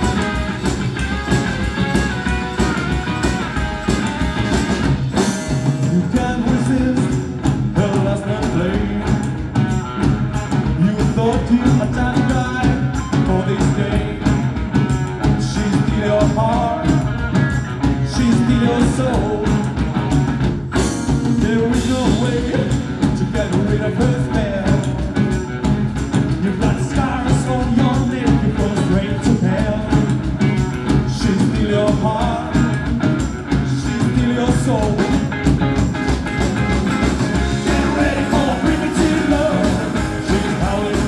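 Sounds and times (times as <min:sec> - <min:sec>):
live rockabilly band playing: 0:00.0 - 0:41.0
lead vocal singing: 0:05.2 - 0:19.9, 0:21.3 - 0:25.2, 0:26.2 - 0:35.4, 0:37.2 - 0:41.0.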